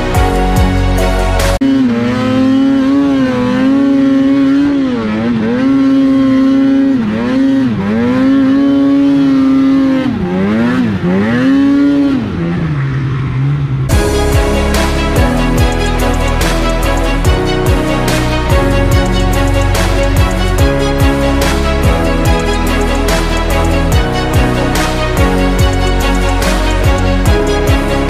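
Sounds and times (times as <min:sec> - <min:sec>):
snowmobile engine revving: 0:00.0 - 0:28.0.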